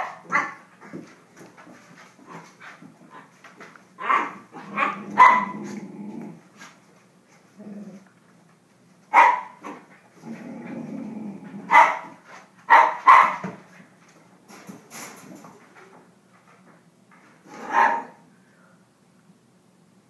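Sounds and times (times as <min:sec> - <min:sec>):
puppy barking: 0:00.0 - 0:00.6, 0:04.0 - 0:05.6, 0:09.1 - 0:09.8, 0:11.7 - 0:13.5, 0:17.6 - 0:18.2
puppy growling: 0:04.0 - 0:06.6, 0:07.5 - 0:08.2, 0:09.7 - 0:11.8.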